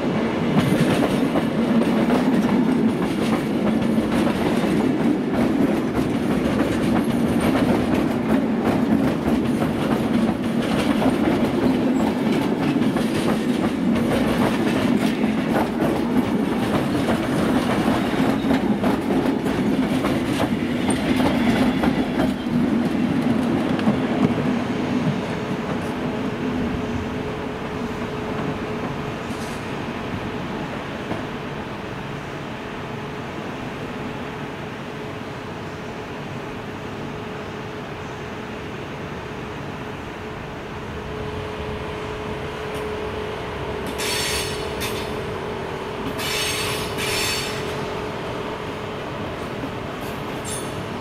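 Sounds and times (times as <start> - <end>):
electric train running drone: 0.0 - 51.0
wheels clicking over rail joints: 50.0 - 50.8.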